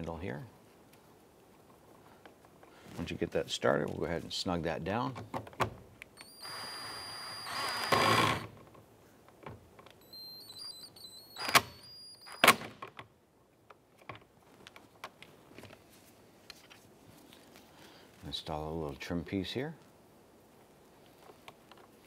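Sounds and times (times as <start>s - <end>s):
cordless drill motor whining: 6.2s - 8.5s, 10.0s - 12.5s
sharp clicks: 9.9s - 12.7s.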